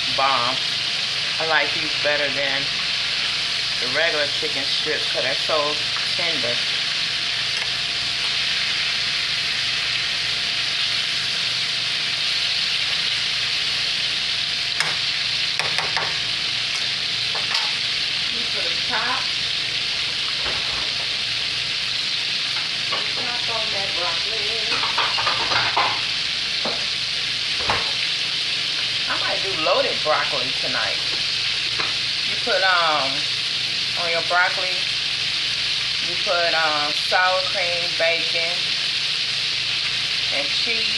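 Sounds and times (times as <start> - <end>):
chicken frying in hot oil: 0.0 - 40.9.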